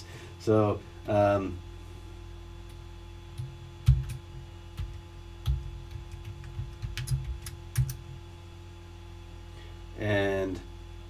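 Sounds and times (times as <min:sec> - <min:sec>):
steady low hum: 0:00.0 - 0:11.0
keyboard keys clicking: 0:03.4 - 0:04.2, 0:04.8 - 0:08.0.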